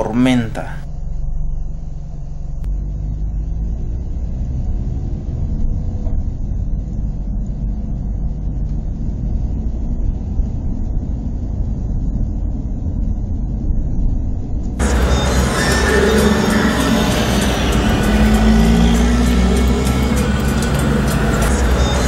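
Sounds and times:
car engine running: 0:00.0 - 0:22.0
tyres rumbling on road: 0:14.8 - 0:22.0.

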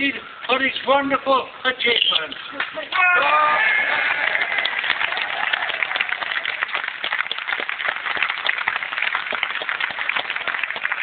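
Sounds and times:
crowd applauding: 0:03.0 - 0:11.0.

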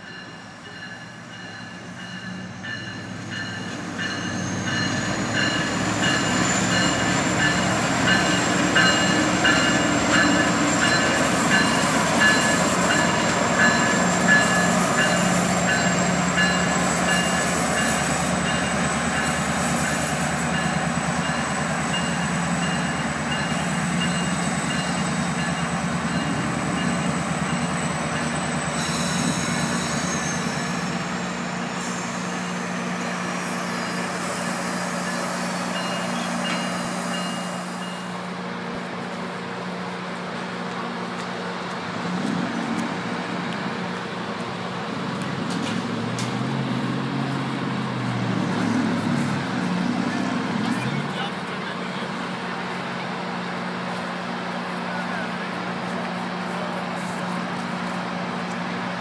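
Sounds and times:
bell-like pulsing ring: 0:00.0 - 0:28.6, 0:35.0 - 0:38.3
diesel locomotive engine drone: 0:00.0 - 0:59.0
wheels squealing on rails: 0:00.0 - 0:59.0.

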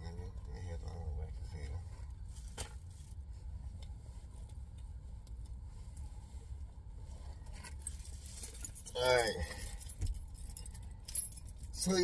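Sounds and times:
low rumble in car cabin: 0:00.0 - 0:12.0.

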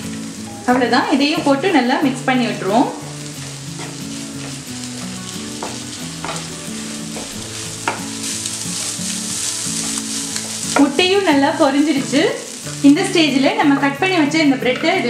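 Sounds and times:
egg and vegetables sizzling in pan: 0:00.0 - 0:15.0
wooden spatula scraping pan: 0:03.6 - 0:12.3.

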